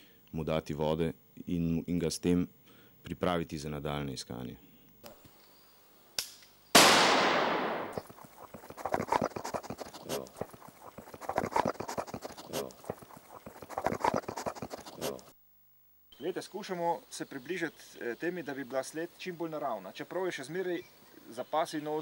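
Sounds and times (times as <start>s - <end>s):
rifle shot: 6.8s - 8.0s
rustling and crackling: 7.7s - 15.3s.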